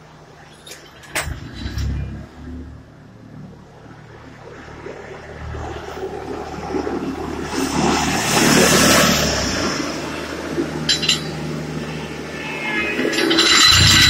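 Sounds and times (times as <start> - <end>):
road noise: 0.0 - 14.0
vehicle engine running: 5.9 - 14.0.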